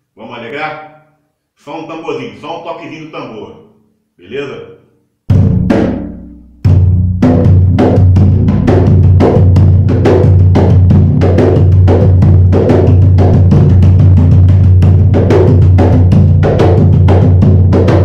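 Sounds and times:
hand drum played loudly: 0:05.3 - 0:18.0.

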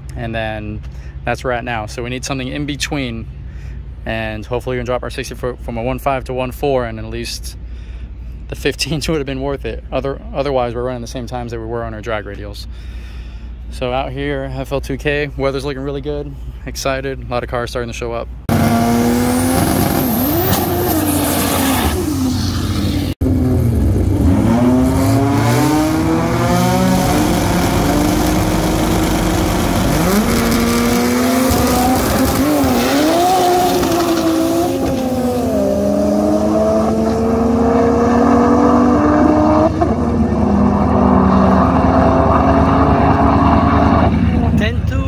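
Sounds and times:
race car engine accelerating: 0:18.5 - 0:44.6.

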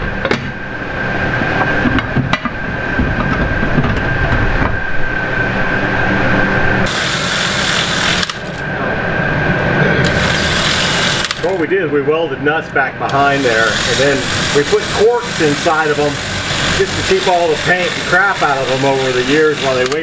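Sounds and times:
mechanical noise with whine: 0:00.0 - 0:20.0
cordless drill grinding through cork: 0:10.1 - 0:11.5, 0:13.3 - 0:20.0.

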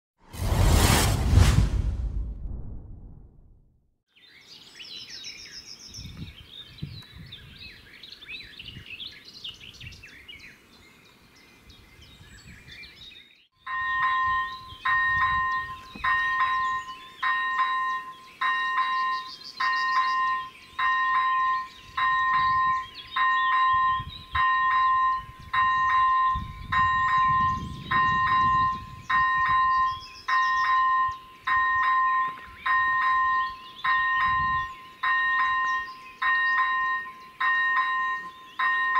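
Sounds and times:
birds chirping: 0:04.1 - 0:13.5, 0:14.3 - 0:38.9
level crossing bell ringing: 0:13.7 - 0:27.4, 0:29.2 - 0:34.4, 0:35.0 - 0:38.9.

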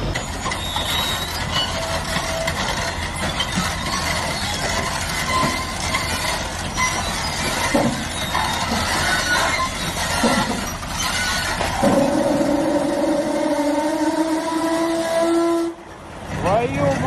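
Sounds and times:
diesel engine rumbling: 0:00.0 - 0:17.0
steel tracks squealing and clanking: 0:00.0 - 0:17.0
horn-like tone: 0:13.0 - 0:15.8.

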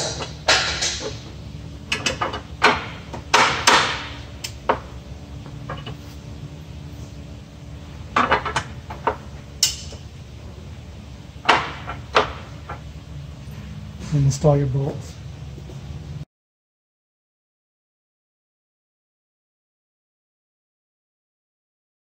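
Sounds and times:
steady low hum: 0:00.0 - 0:16.3.

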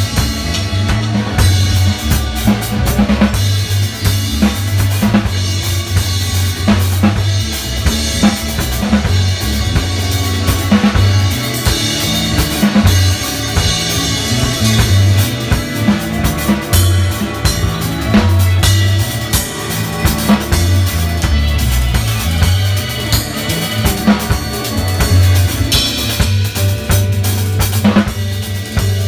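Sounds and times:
deep bass line: 0:00.0 - 0:29.0
drum kit beat: 0:00.0 - 0:29.0.

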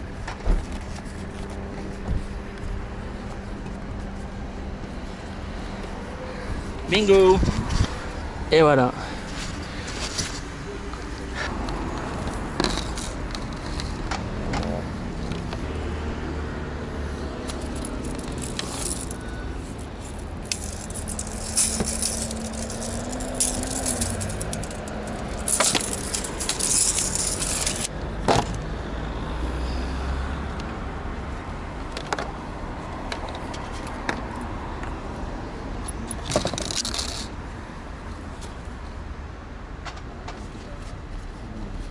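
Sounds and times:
low rumble of traffic: 0:00.0 - 0:41.9
engine passing: 0:01.1 - 0:31.4
hand tools and cable rattling: 0:11.3 - 0:15.7, 0:17.2 - 0:28.6, 0:35.8 - 0:37.4.

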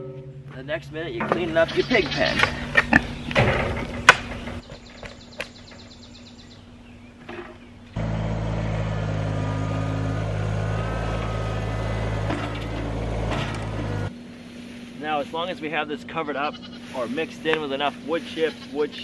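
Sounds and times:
tractor engine running: 0:00.0 - 0:06.6, 0:07.6 - 0:14.4
pitchfork scraping bedding: 0:01.2 - 0:04.7, 0:10.8 - 0:15.6, 0:16.7 - 0:19.0.

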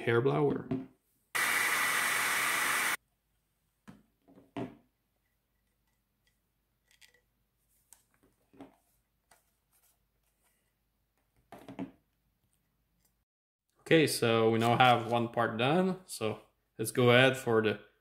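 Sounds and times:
hair dryer blowing: 0:01.4 - 0:03.0.

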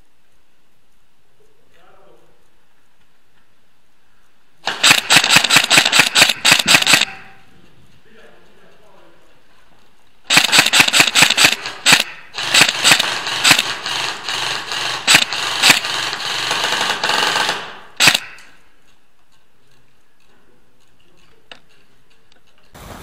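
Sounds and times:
airsoft gun firing: 0:04.6 - 0:07.4, 0:10.3 - 0:18.5.

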